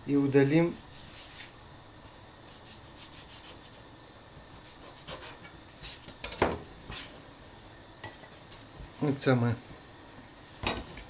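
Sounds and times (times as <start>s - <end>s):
knife scraping cutting board: 4.5s - 6.1s.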